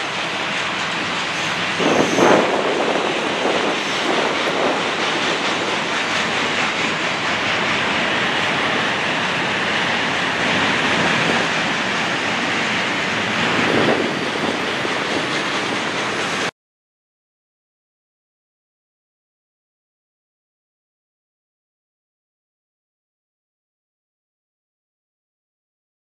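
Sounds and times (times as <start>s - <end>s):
freight train wheels on rail: 0.0s - 16.5s.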